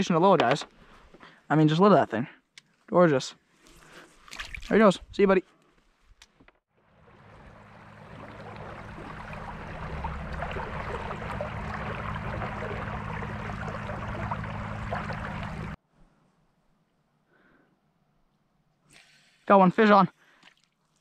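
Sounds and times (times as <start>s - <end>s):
low steady hum: 6.9s - 15.8s
water splashing along boat hull: 7.0s - 15.8s.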